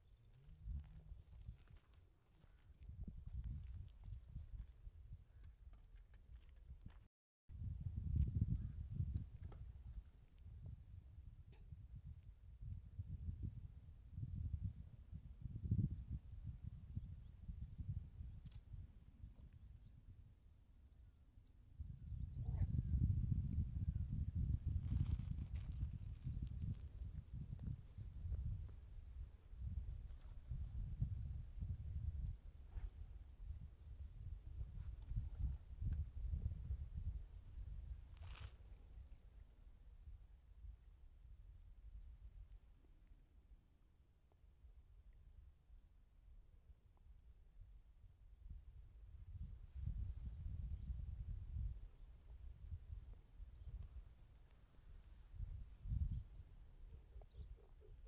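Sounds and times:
wind buffeting microphone: 2.8s - 5.5s, 7.6s - 18.9s, 21.8s - 38.0s, 49.2s - 51.8s, 55.4s - 56.4s
crickets trilling: 7.5s - 58.0s.

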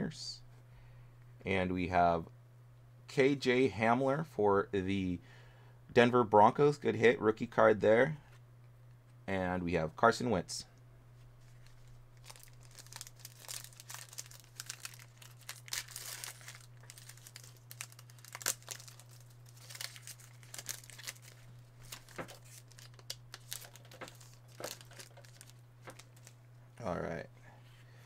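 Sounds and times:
steady low hum: 0.0s - 28.0s
foil wrapper crinkling and tearing: 11.4s - 26.4s.

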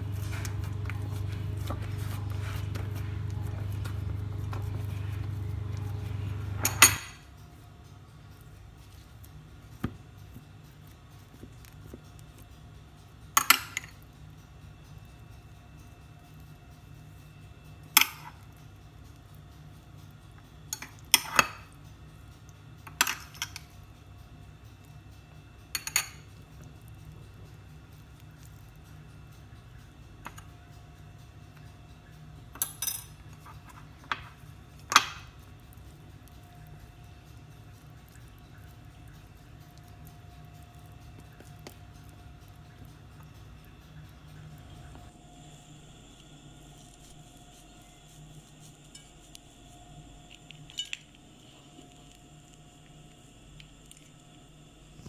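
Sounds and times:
low steady hum: 0.0s - 55.0s
bread clicking on a ceramic plate: 34.1s - 35.4s.

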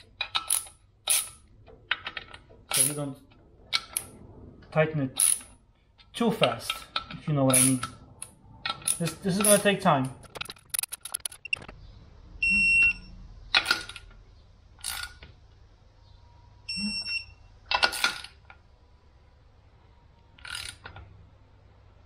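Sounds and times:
wrench and socket clanking on bolts: 0.0s - 3.1s, 6.3s - 11.4s
torque wrench high beeps: 12.4s - 13.2s, 16.7s - 17.4s.

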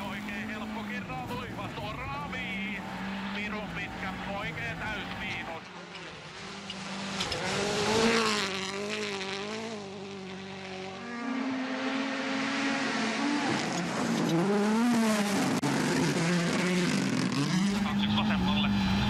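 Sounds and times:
rally car engines at full throttle: 0.0s - 19.0s.

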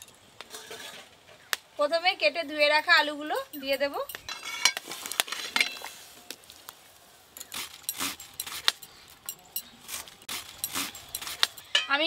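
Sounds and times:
steel plate clinking against pot: 3.4s - 4.8s.

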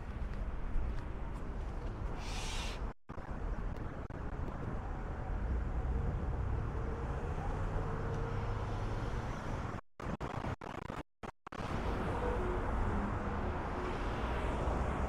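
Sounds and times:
road traffic noise: 0.0s - 9.8s, 11.6s - 15.0s.

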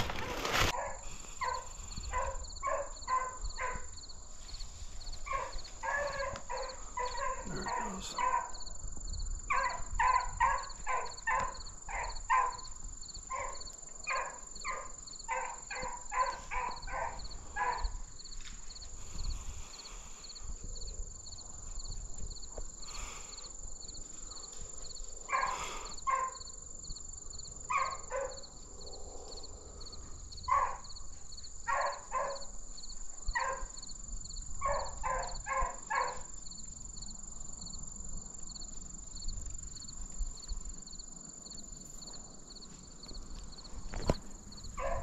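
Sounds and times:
animal short pitched calls: 7.0s - 8.3s.

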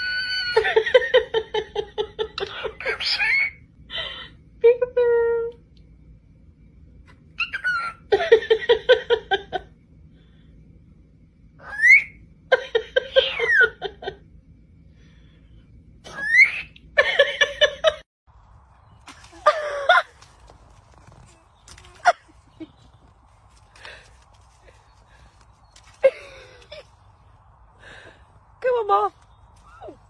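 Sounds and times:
bird whistling: 11.6s - 12.2s.

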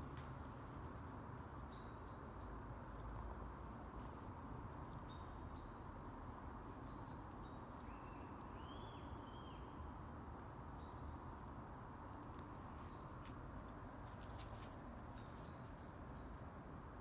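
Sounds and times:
low hiss and rumble: 0.0s - 17.0s.

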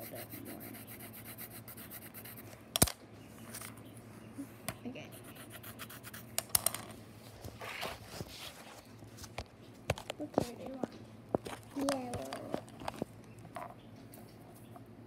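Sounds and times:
scribbling on paper: 0.0s - 2.5s, 5.0s - 6.3s.

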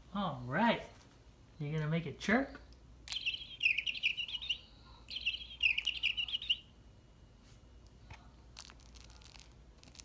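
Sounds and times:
cat toy chirping: 3.1s - 6.7s.

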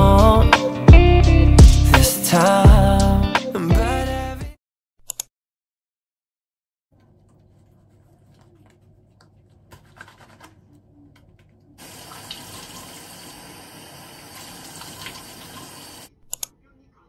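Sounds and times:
hands splashing water: 11.8s - 16.0s
tap running into sink: 11.8s - 16.0s.

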